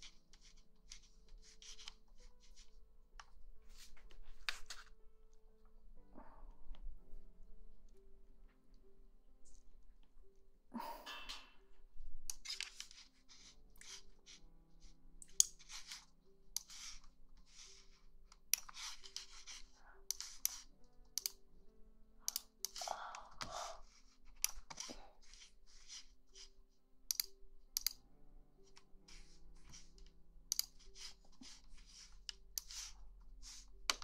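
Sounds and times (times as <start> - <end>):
soft background music: 0.0 - 34.0.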